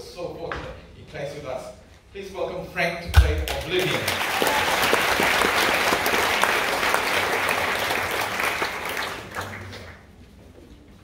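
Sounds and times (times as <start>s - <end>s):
audience applauding: 3.5s - 10.2s.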